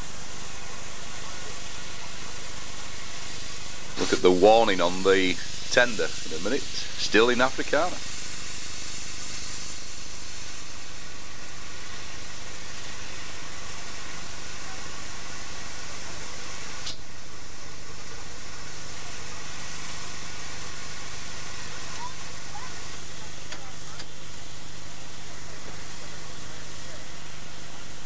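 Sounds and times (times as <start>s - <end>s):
steam hissing from locomotive: 0.0s - 28.0s.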